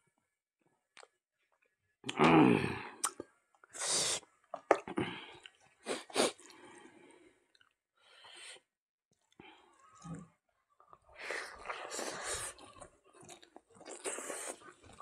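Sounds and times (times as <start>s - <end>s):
lip smacks and chewing: 3.0s - 3.3s, 4.4s - 6.5s, 7.5s - 7.8s, 10.8s - 15.0s.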